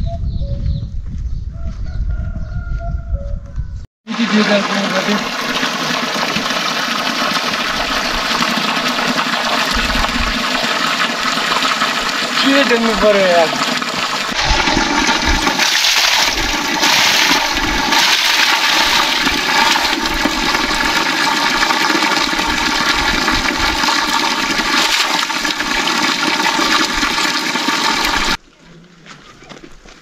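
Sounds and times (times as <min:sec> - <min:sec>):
water rushing: 0:04.1 - 0:28.4.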